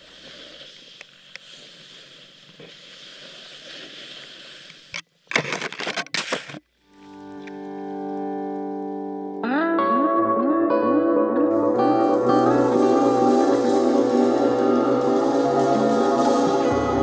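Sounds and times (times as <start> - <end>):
snowboard scraping through snow: 0.0 - 5.0, 11.8 - 17.0
sustained guitar chord: 7.2 - 17.0.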